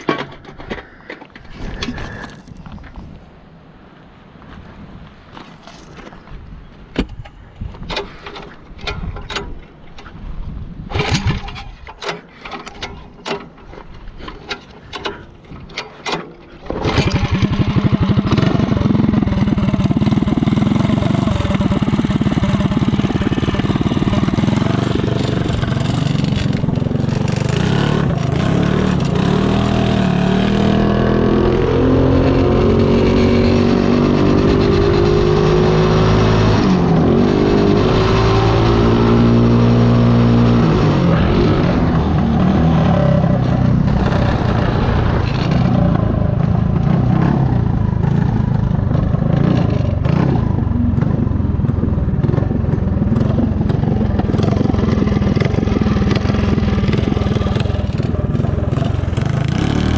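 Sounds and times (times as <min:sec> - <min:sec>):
go-kart engine running: 0:16.7 - 0:59.9.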